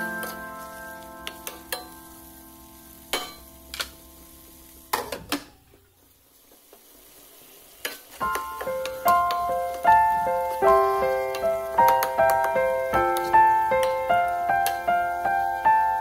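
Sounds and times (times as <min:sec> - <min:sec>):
spatula scraping a pan: 0:00.0 - 0:01.9, 0:07.8 - 0:14.8
faint sizzle: 0:00.0 - 0:16.0.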